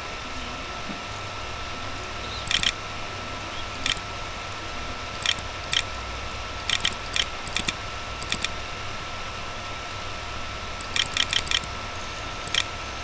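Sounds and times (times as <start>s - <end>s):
steady low hum: 0.0s - 13.0s
short sharp clicks: 2.4s - 2.8s, 6.7s - 8.6s, 10.8s - 11.7s.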